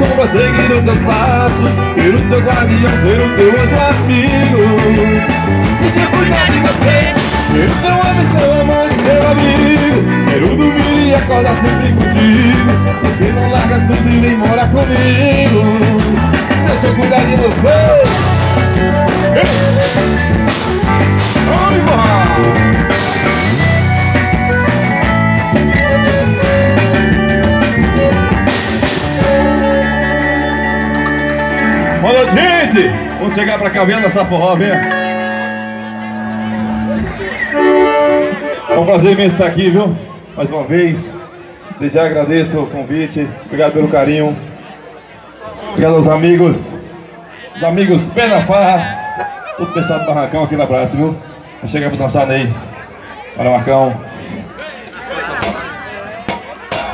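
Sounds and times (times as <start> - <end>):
drum beat: 0.0 - 32.0, 55.4 - 56.9
electric guitar: 0.0 - 38.8
button accordion: 0.0 - 39.8
bass: 0.0 - 44.5.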